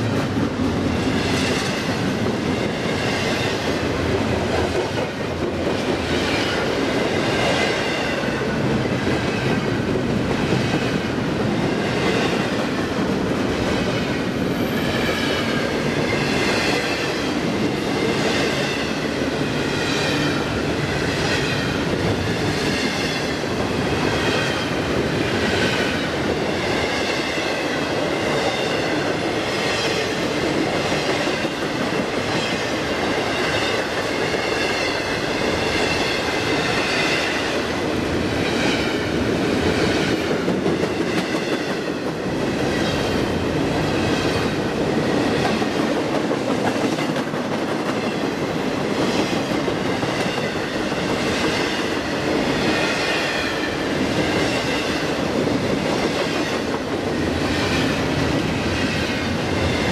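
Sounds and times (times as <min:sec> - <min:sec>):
steel wheels on rails: 0:00.0 - 0:59.9.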